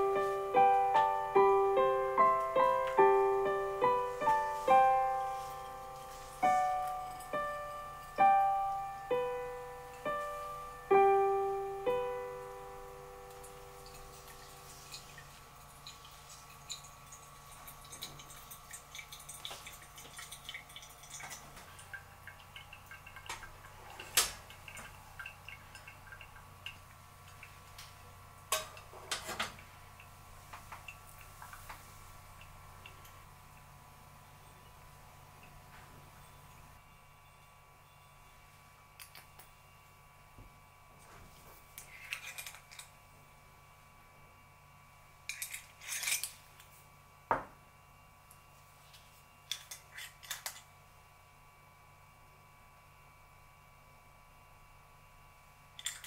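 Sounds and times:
coffee dripping into glass: 6.6s - 8.2s, 13.3s - 27.8s, 28.4s - 36.7s.

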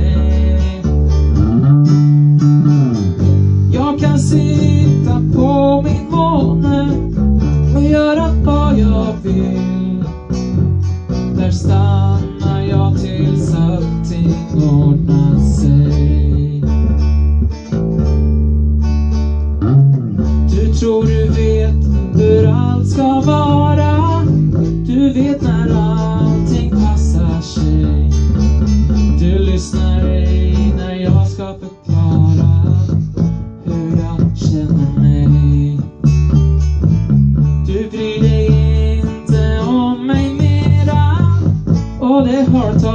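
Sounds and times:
person singing: 0.0s - 1.4s, 3.7s - 16.9s, 20.4s - 33.0s, 33.6s - 36.0s, 37.6s - 42.9s
acoustic guitar strumming: 0.0s - 42.9s
electric guitar: 0.0s - 42.9s.

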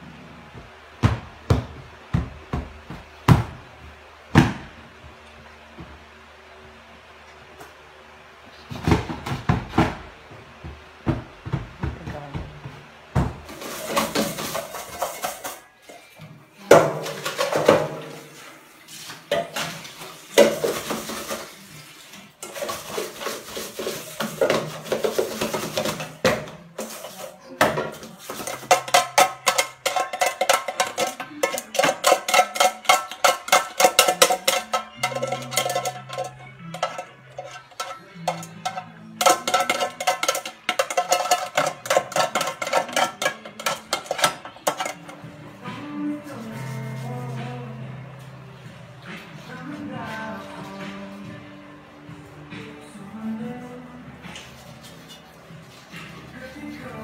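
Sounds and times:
dishes clattering in a sink: 13.2s - 45.3s
background music with steady beat: 22.3s - 57.0s.

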